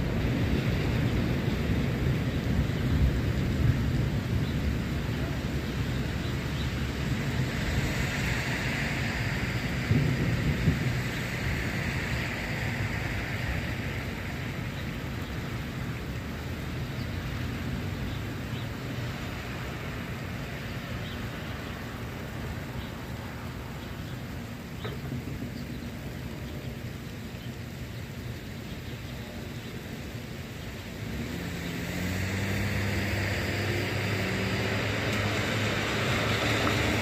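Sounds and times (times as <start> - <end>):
rain hissing: 0.0 - 37.0
rolling thunder: 7.3 - 14.6.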